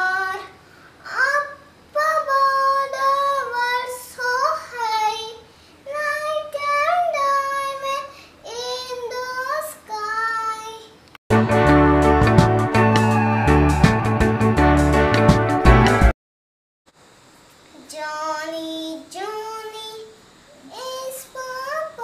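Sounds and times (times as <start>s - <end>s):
girl singing unaccompanied: 0.0s - 11.0s, 17.7s - 22.0s.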